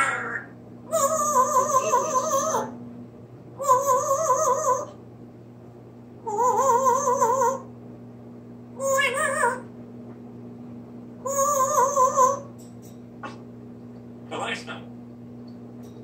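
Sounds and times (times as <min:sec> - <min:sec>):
parrot warbling calls: 0:00.0 - 0:02.8, 0:03.6 - 0:05.0, 0:06.2 - 0:07.7, 0:08.8 - 0:09.7, 0:11.2 - 0:12.6
steady low hum: 0:00.0 - 0:16.0.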